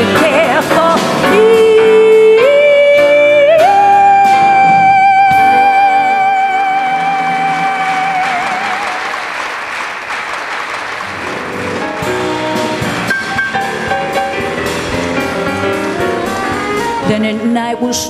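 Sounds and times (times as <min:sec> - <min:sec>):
woman singing with vibrato: 0:00.0 - 0:09.0, 0:16.9 - 0:18.0
jazz band playing: 0:00.0 - 0:18.0
audience applause: 0:06.6 - 0:17.0.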